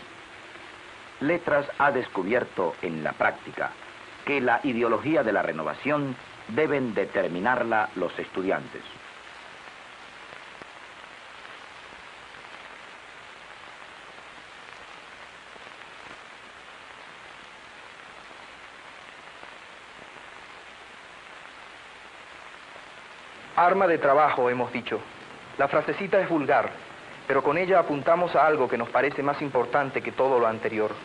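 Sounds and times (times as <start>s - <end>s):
film soundtrack hiss: 0.0s - 31.0s.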